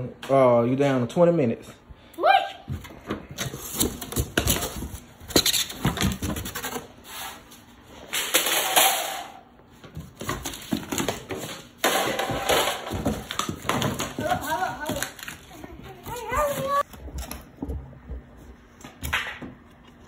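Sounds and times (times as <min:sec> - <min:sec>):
metal parts clattering and scraping: 0:08.1 - 0:09.4
cardboard rustling: 0:12.9 - 0:16.9.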